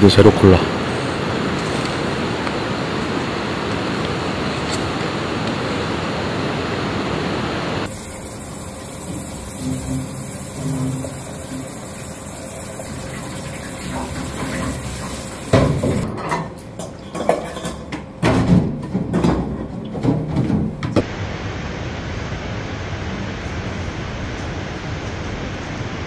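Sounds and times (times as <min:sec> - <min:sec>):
steady rushing noise: 0:00.0 - 0:08.0, 0:21.0 - 0:26.0
pot washing: 0:07.9 - 0:16.1
water from a sink tap: 0:07.9 - 0:16.1.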